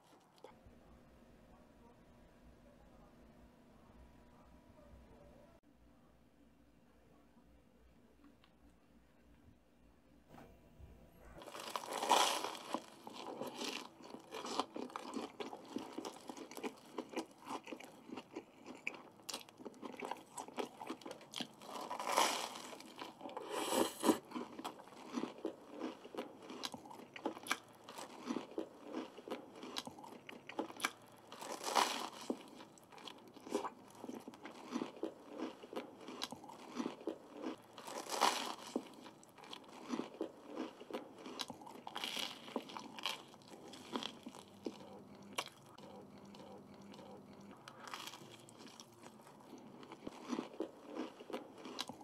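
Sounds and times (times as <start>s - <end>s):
toasted bread crunching: 11.4s - 23.4s, 24.1s - 52.0s
moist chewing: 11.4s - 52.0s.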